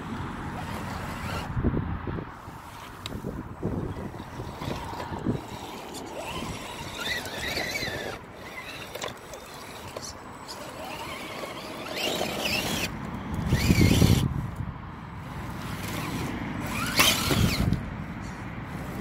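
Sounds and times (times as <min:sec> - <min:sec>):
electric motor whining: 0:02.4 - 0:14.6, 0:15.2 - 0:17.9.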